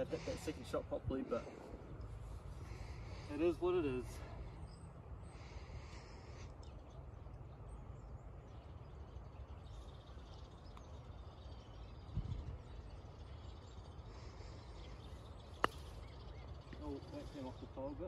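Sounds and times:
faint bird calls: 0.0 - 18.0
wind rumble on microphone: 11.8 - 13.4.

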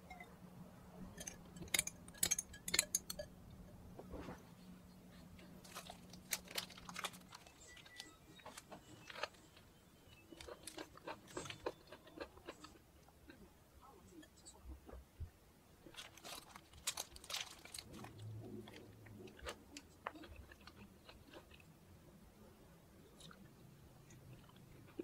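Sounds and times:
paper crinkling: 5.6 - 9.4, 15.9 - 18.2.

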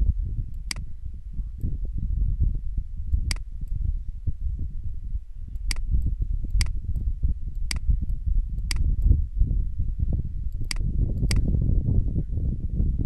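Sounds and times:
continuous low rumble: 0.0 - 13.0
computer mouse clicking: 5.6 - 5.9, 6.5 - 7.0, 7.6 - 9.1.

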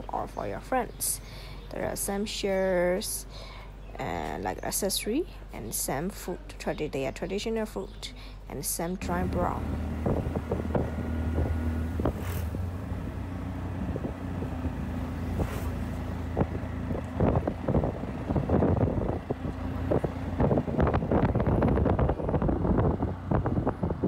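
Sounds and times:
vehicle engine running: 9.0 - 24.0
wind on microphone: 9.1 - 24.0.

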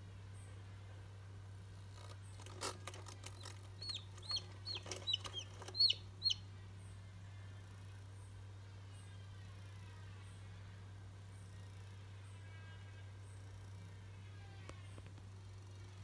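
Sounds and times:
steady low hum: 0.0 - 16.0
chick peeping: 3.0 - 6.5.

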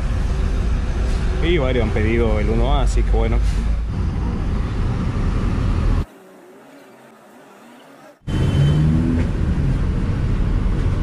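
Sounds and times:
bus engine and road rumble: 0.0 - 6.1, 8.3 - 11.0.

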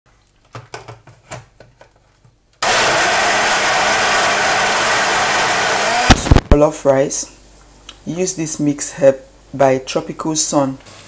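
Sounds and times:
blender motor running: 2.6 - 6.4.

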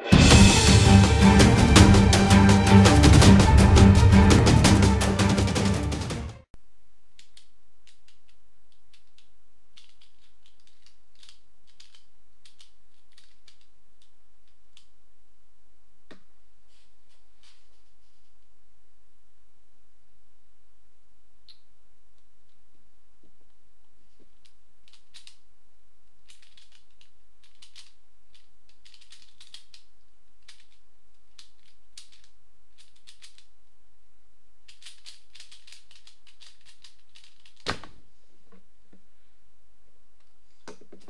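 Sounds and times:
plastic puzzle clicking: 7.2 - 14.9, 24.3 - 25.4, 26.2 - 33.5, 34.7 - 37.9.

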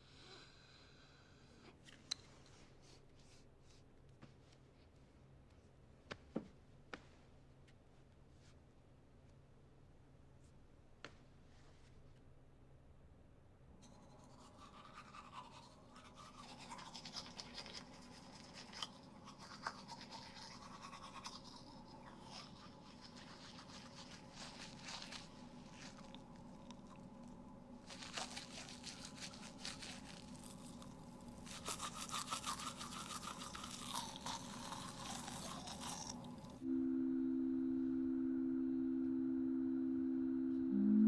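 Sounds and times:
faint steady hum: 9.3 - 41.0
toothbrush scrubbing teeth: 13.8 - 36.6.

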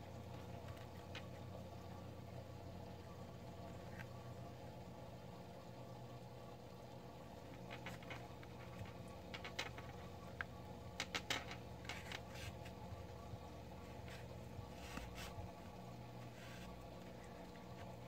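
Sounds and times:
needle and yarn rustling: 13.8 - 18.0.

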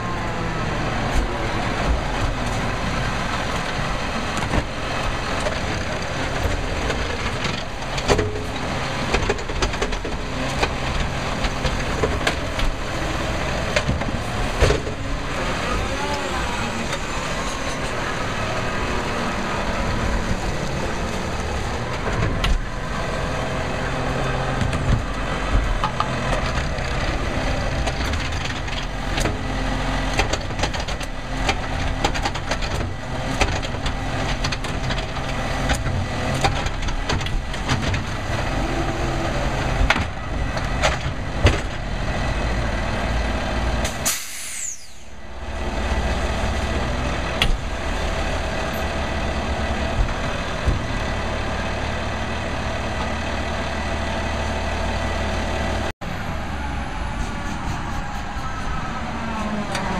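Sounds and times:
truck diesel engine running: 0.0 - 59.9
cart knocking and clattering: 3.3 - 15.2.

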